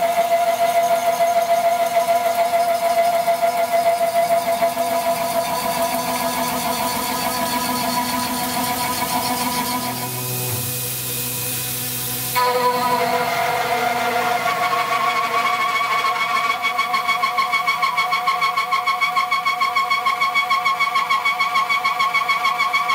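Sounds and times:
milling cutter whine cutting aluminium: 0.6s - 18.7s.

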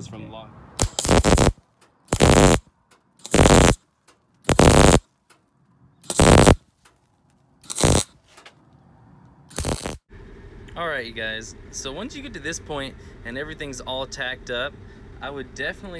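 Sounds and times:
welding arc crackling and sizzling: 0.8s - 2.6s, 3.2s - 3.8s, 4.5s - 5.0s, 6.1s - 6.6s, 7.7s - 8.1s, 9.5s - 10.0s.

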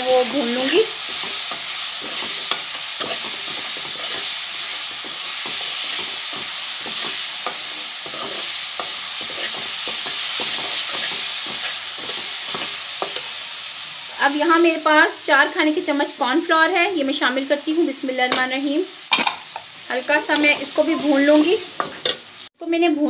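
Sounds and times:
spoon stirring and scraping pan: 0.0s - 13.8s, 18.3s - 22.5s
spices frying in oil: 0.0s - 23.0s.

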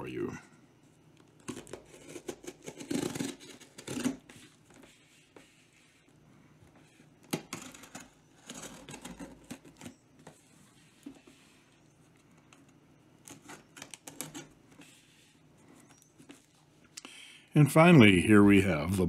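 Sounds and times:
plastic crinkling: 1.2s - 4.8s, 7.2s - 14.6s
knife slicing tape and plastic: 1.4s - 4.3s
knife cutting bubble wrap: 1.4s - 4.9s, 7.2s - 10.0s
scraping against cardboard: 1.4s - 16.7s.

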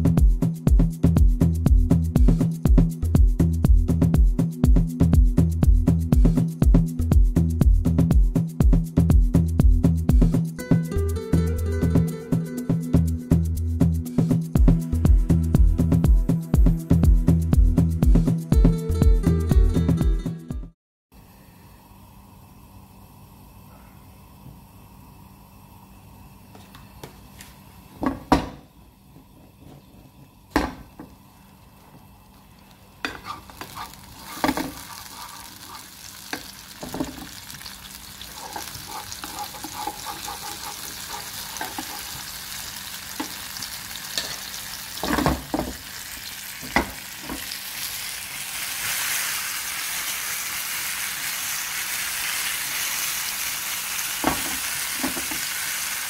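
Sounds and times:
tomato sizzling in oil: 29.6s - 56.0s.

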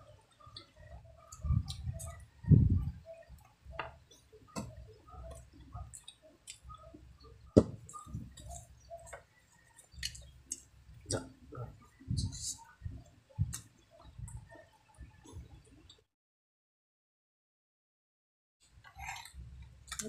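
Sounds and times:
wet chewing and lip smacks: 0.3s - 2.2s, 5.1s - 7.0s, 7.9s - 11.2s
sharp knocks: 7.6s - 7.9s.

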